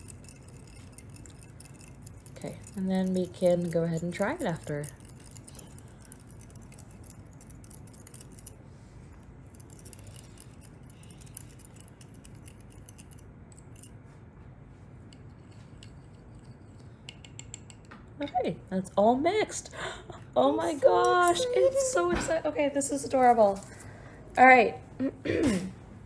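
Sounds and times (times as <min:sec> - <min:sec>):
spoon scraping glass cup: 0:00.0 - 0:08.6, 0:09.5 - 0:14.0.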